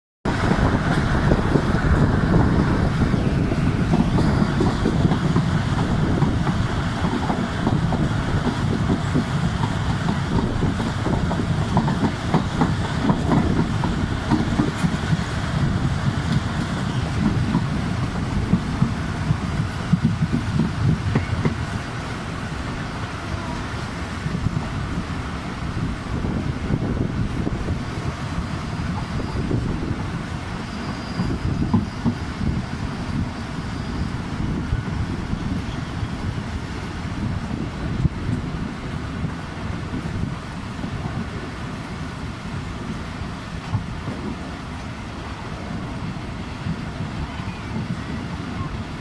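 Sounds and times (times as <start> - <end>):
train wheels rumbling on rails: 0.2 - 49.0
wheels clacking over rail joints: 0.4 - 22.8.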